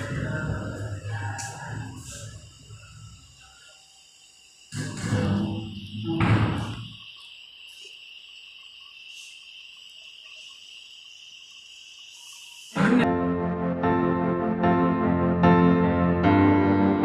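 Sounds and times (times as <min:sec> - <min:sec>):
low rumbling noise: 0:00.0 - 0:03.1
music: 0:12.8 - 0:17.0.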